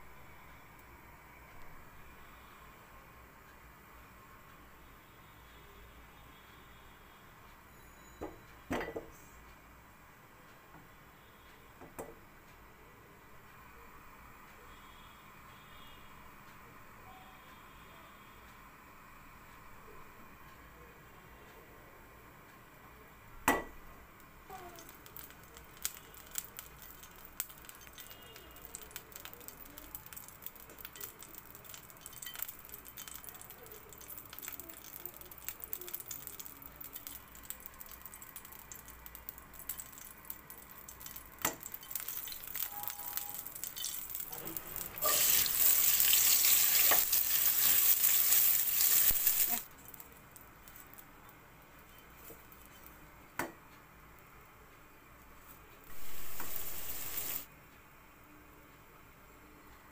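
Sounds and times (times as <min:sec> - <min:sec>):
onions sizzling in hot oil: 0:24.5 - 0:49.7, 0:55.9 - 0:57.5.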